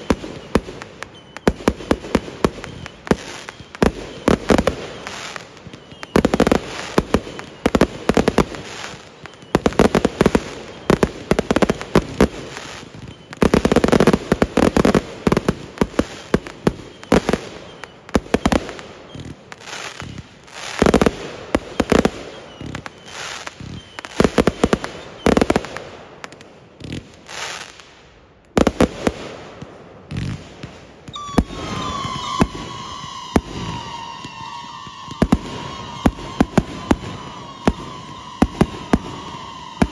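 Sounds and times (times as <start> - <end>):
fireworks bangs and crackling: 0.0 - 39.9
whistling tone sliding down: 2.4 - 11.0, 31.1 - 39.9.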